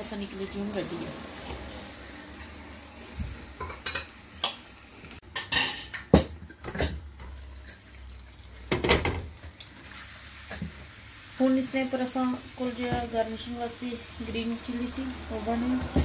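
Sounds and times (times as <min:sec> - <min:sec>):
faint sizzling in a pan: 0:00.0 - 0:16.0.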